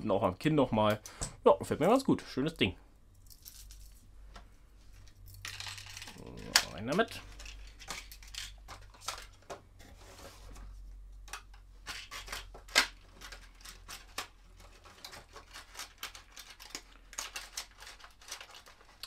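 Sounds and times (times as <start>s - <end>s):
plastic blister pack crinkling: 11.9s - 19.0s.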